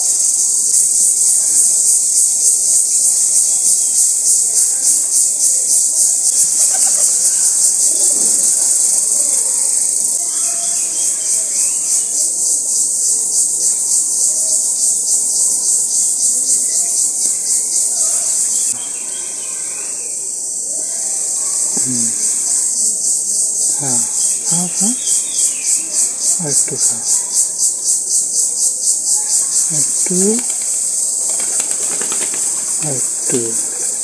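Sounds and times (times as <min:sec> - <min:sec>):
insect chorus pulsing drone: 0:00.0 - 0:34.0.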